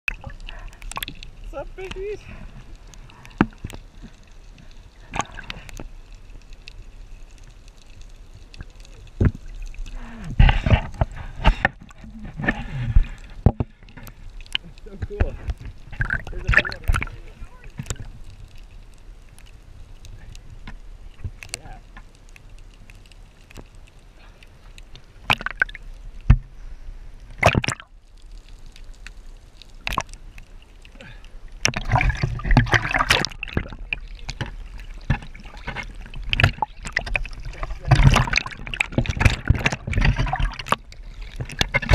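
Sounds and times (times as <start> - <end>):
underwater rumble of moving water: 0.0 - 41.9
small clicks and crackles: 0.1 - 41.9
dull underwater thumps: 10.3 - 14.1, 27.4 - 27.9, 31.6 - 41.9.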